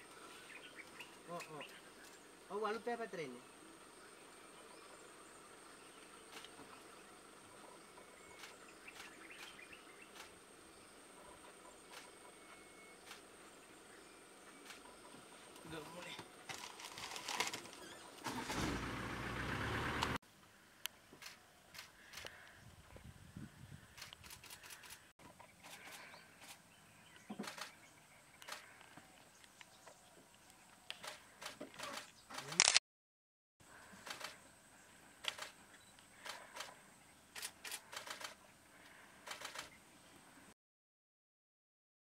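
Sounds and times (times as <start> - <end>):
faint outdoor ambience: 0.0 - 32.8, 33.6 - 40.6
sharp clicks: 24.0 - 25.1, 30.9 - 32.8, 35.2 - 36.7, 37.4 - 38.4.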